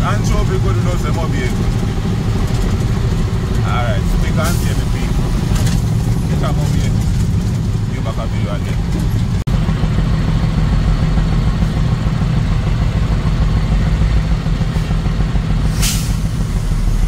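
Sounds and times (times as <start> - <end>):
engine and road rumble: 0.0 - 17.0
short hiss: 15.8 - 16.4.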